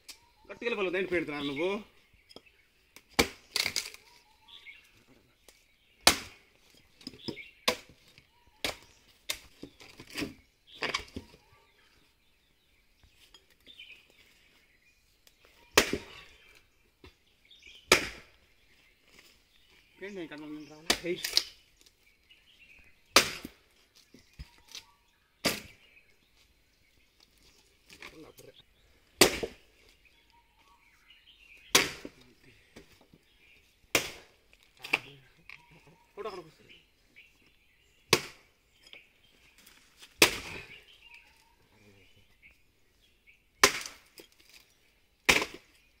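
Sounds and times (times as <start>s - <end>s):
axe chopping wood: 3.0s - 4.0s, 6.0s - 6.4s, 7.0s - 8.0s, 8.6s - 11.3s, 15.7s - 16.3s, 17.9s - 18.4s, 20.8s - 21.6s, 23.1s - 23.6s, 25.4s - 25.9s, 29.2s - 29.7s, 31.7s - 32.2s, 33.9s - 35.1s, 38.1s - 38.5s, 40.0s - 40.8s, 43.6s - 44.6s, 45.2s - 45.8s.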